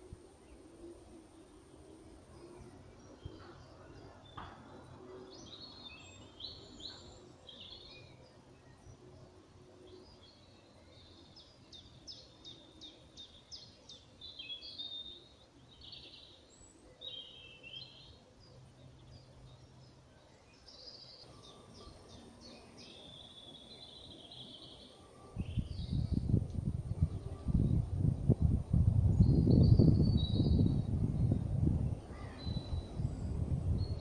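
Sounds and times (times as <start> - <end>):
birds calling and singing: 0.0 - 34.0
low rumbling on microphone: 25.4 - 34.0.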